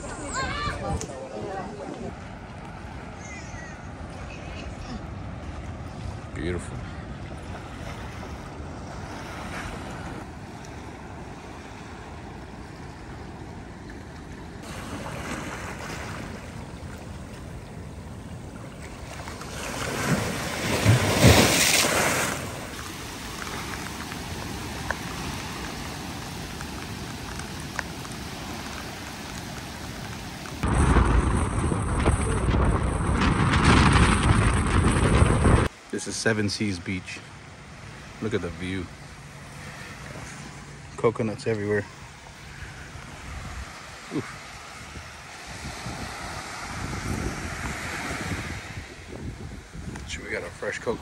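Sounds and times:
small waves washing on shore: 0.0s - 51.0s
wind on microphone: 23.0s - 35.7s, 42.5s - 50.2s
wind noise from moving car: 30.6s - 35.7s, 43.2s - 50.2s.

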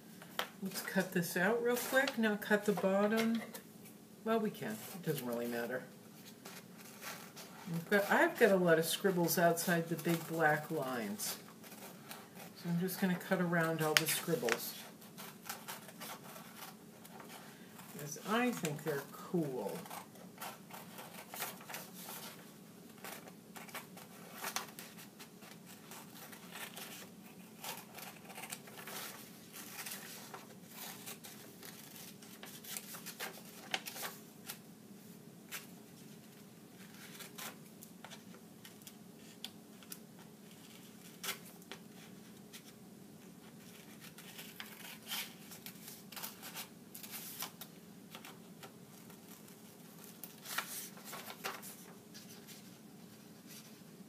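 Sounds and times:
faint steady hum: 0.0s - 54.0s
scissors snipping paper: 25.9s - 30.1s.

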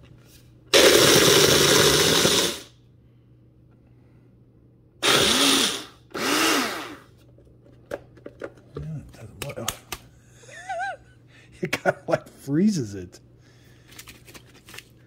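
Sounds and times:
blender crushing ice: 0.7s - 2.8s, 5.0s - 7.1s.

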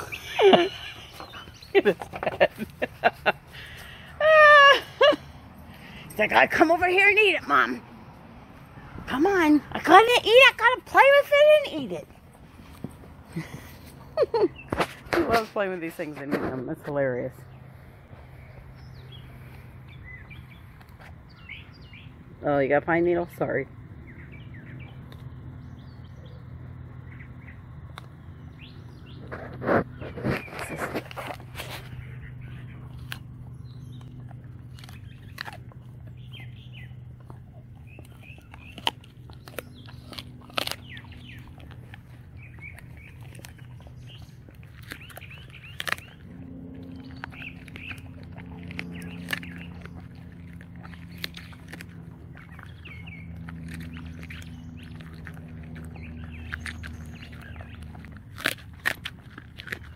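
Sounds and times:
birds chirping: 0.0s - 59.9s
steady low hum: 0.0s - 59.9s
dog crunching bones: 24.1s - 59.9s.

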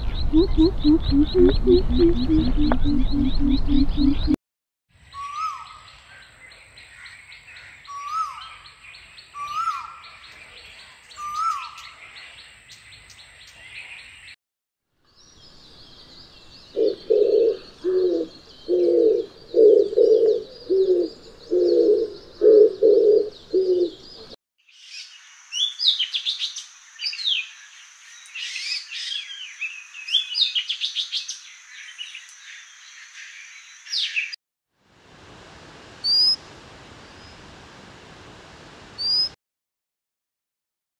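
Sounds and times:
bird twittering song: 0.0s - 4.4s, 15.1s - 34.4s, 36.0s - 36.4s, 39.0s - 39.4s
koel rising calls: 0.0s - 4.4s
turtle dove cooing: 0.1s - 4.4s, 16.7s - 24.4s.

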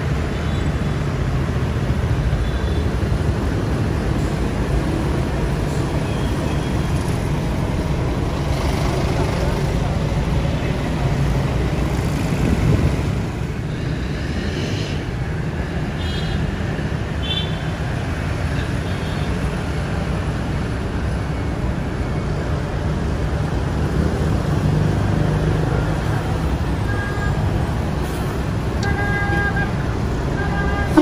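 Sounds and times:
diesel coach engines rumbling: 0.0s - 31.0s
street traffic noise: 0.0s - 31.0s.

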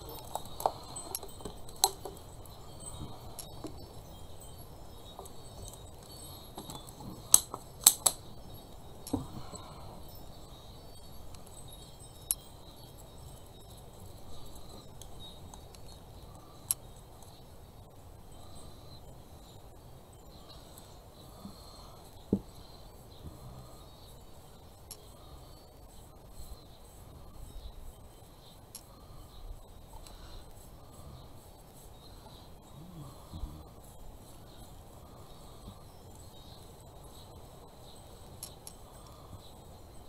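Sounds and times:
items clinking on hard surface: 0.0s - 4.1s.

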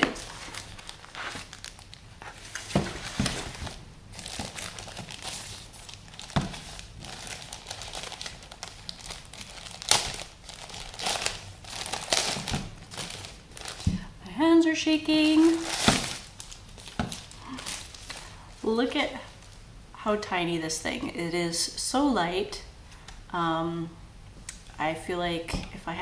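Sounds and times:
plastic wrap crinkling: 0.0s - 14.2s, 15.1s - 18.5s.

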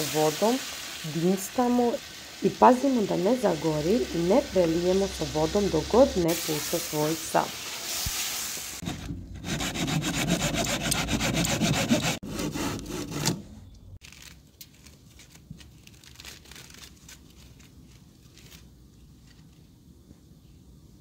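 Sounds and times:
meat and onion sizzling: 0.0s - 8.8s
cat paws rustling dry leaves: 14.0s - 19.6s.

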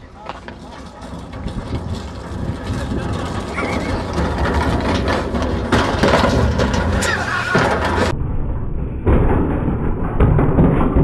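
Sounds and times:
wheelie bin rumbling and rattling: 0.0s - 8.1s
bin crashing onto tarmac: 0.2s - 8.1s
people shouting: 7.0s - 7.8s.

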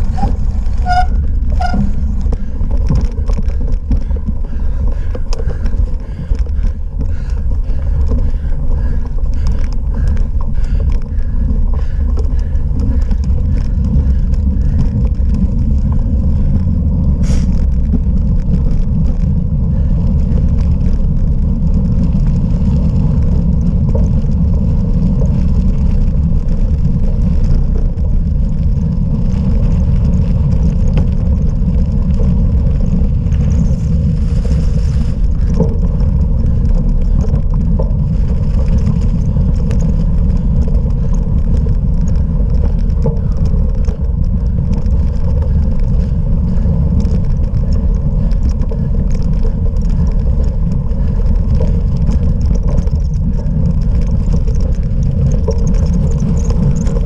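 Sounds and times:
wind and tyre rumble: 0.0s - 57.0s
light rattling clicks: 35.3s - 57.0s.

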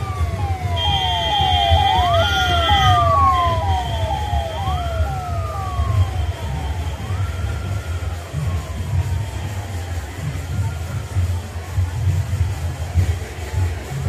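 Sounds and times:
siren chirping: 0.0s - 10.7s
siren wailing: 0.0s - 11.2s.

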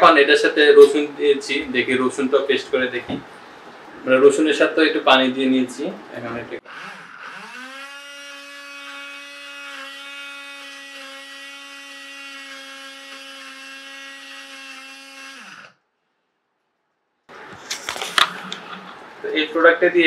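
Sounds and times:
blender motor whining: 6.6s - 15.8s.

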